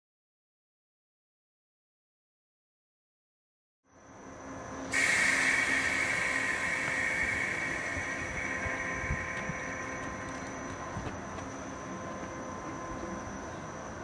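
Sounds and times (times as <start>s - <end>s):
electric train running: 4.0s - 14.0s
loud steady hiss: 4.1s - 13.1s.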